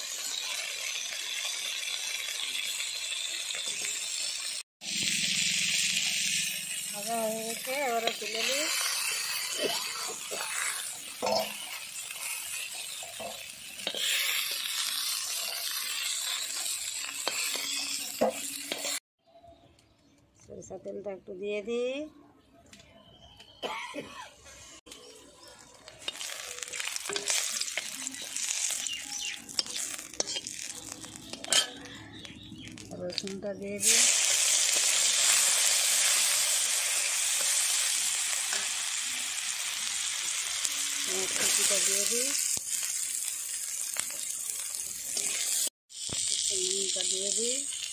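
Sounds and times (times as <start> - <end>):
fish frying in hot oil: 0.0 - 19.0, 25.2 - 47.9
metal spatula scraping a pan: 5.3 - 19.0, 26.0 - 32.2, 44.0 - 45.7.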